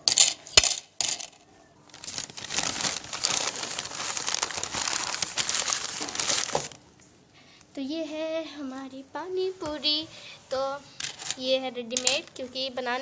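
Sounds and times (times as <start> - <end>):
newspaper crumpling: 1.9 - 6.8.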